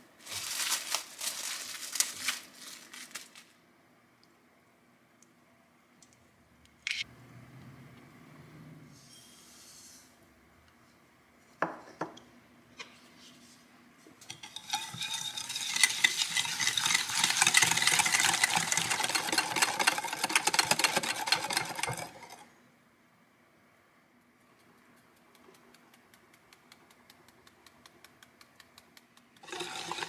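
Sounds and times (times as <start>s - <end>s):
whisk clicking against glass bowl: 14.4s - 22.3s.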